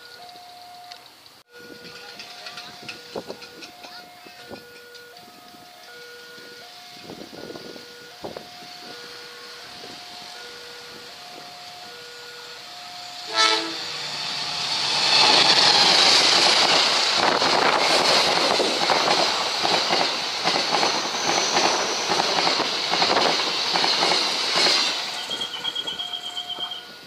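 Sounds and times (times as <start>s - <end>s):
level-crossing warning signal ringing: 0.0s - 17.8s, 24.8s - 27.0s
train passing with wheel clacking: 0.0s - 27.0s
diesel locomotive horn blast: 12.1s - 14.6s.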